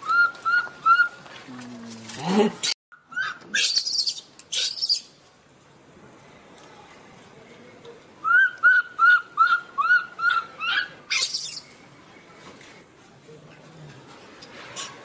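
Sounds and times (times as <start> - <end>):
baby macaque distress calls: 3.0 - 5.1, 8.2 - 11.6.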